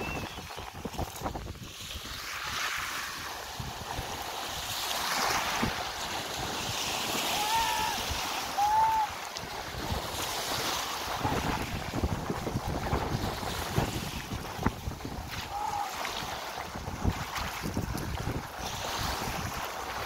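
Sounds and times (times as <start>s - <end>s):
waves breaking on shingle: 0.0s - 20.0s
short high cries: 7.3s - 9.2s.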